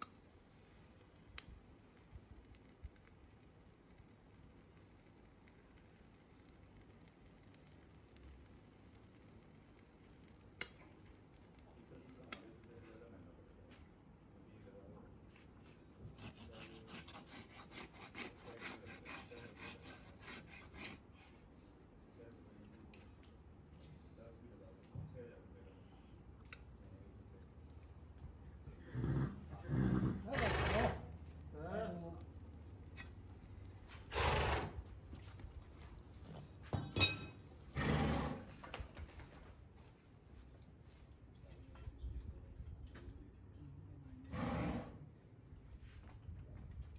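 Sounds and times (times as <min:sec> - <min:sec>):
horse snorting: 0:28.8 - 0:31.1, 0:34.1 - 0:34.8, 0:37.8 - 0:38.5, 0:44.3 - 0:45.0.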